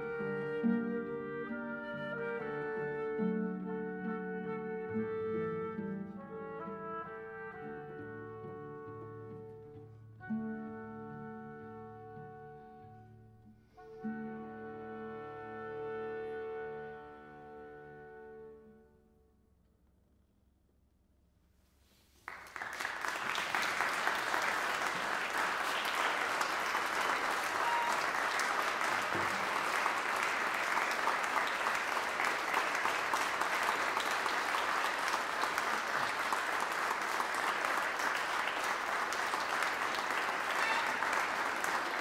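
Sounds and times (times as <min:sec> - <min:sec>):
audience applause: 0:22.2 - 0:42.0.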